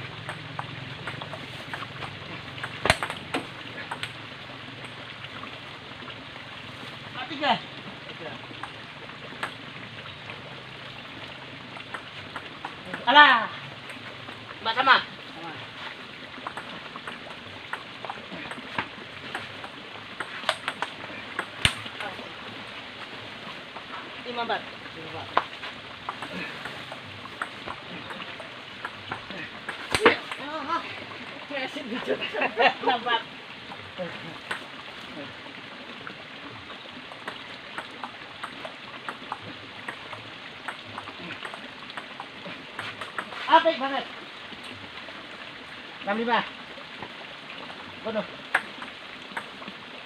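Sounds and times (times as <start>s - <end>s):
ping-pong ball clicking: 0.2s - 4.2s, 11.7s - 13.2s, 16.4s - 22.1s, 25.4s - 30.5s, 37.1s - 43.4s, 48.5s - 49.6s
table tennis ball clicking: 0.2s - 4.2s.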